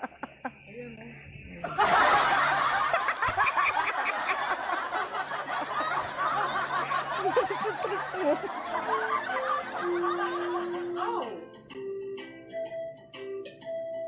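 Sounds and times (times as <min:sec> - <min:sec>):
people laughing: 0:00.0 - 0:00.6, 0:01.6 - 0:11.3
steady low hum: 0:00.0 - 0:10.6.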